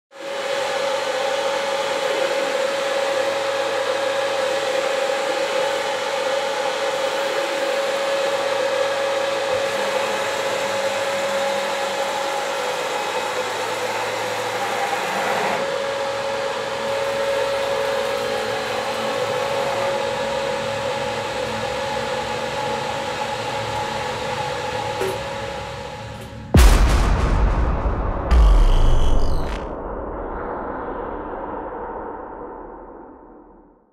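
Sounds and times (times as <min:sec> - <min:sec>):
cnc router whirring whine: 0:00.2 - 0:26.4.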